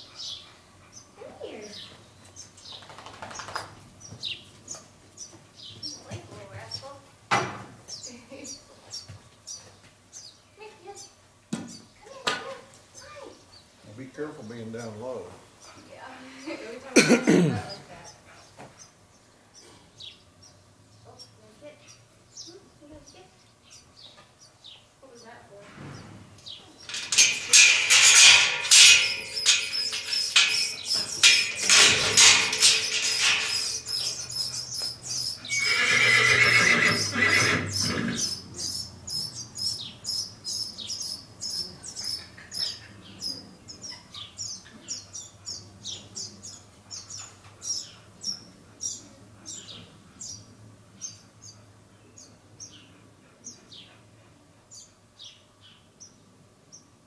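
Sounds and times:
mule braying: 26.9s - 38.4s.

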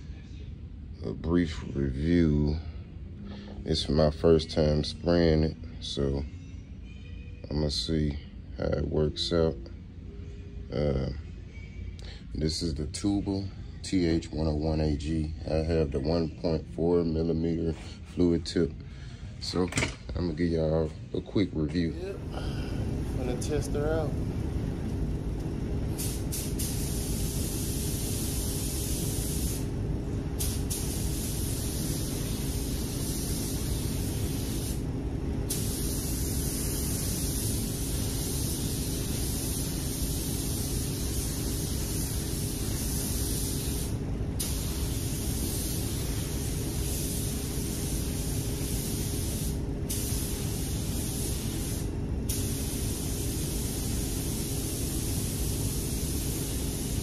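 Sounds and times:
steady low rumble: 8.3s - 56.3s
spray gun hissing: 25.9s - 29.7s, 30.4s - 34.9s, 35.5s - 57.0s.

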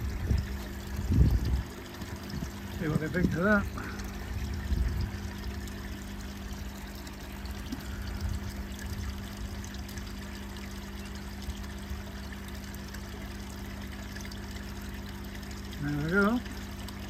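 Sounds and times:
steady low hum: 0.0s - 17.0s
water pouring and trickling: 0.0s - 17.0s.

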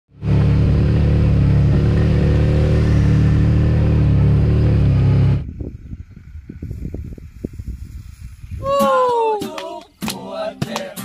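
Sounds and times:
motorcycle engine drone: 0.1s - 8.6s.

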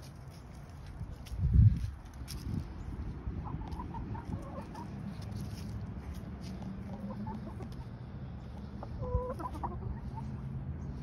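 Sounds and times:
steady low rumble: 0.0s - 11.0s
hens clucking: 3.4s - 11.0s.

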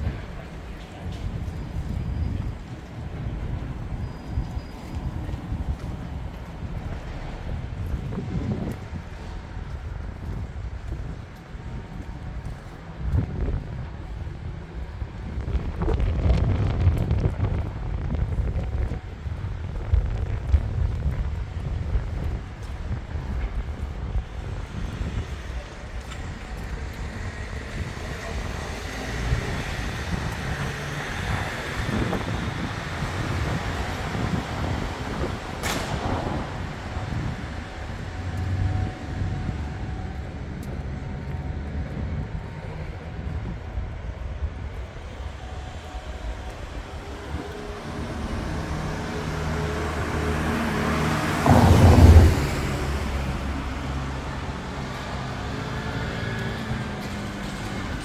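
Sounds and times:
road traffic rumble: 0.0s - 58.0s
vehicle passing close: 46.6s - 58.0s.

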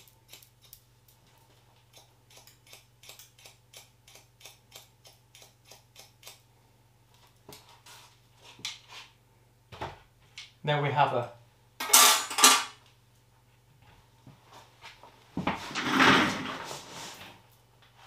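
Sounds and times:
scissors snipping hair: 0.0s - 0.8s, 1.9s - 6.4s.

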